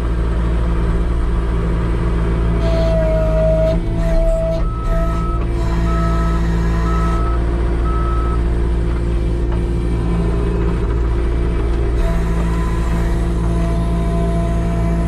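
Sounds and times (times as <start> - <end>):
diesel engine running: 0.0 - 15.0
reversing alarm beeps: 4.2 - 8.4.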